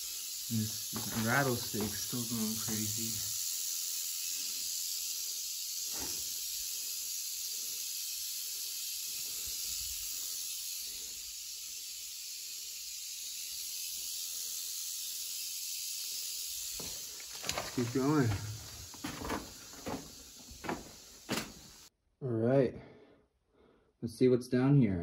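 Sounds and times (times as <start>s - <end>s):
rattlesnake rattling its tail: 0.0s - 21.9s.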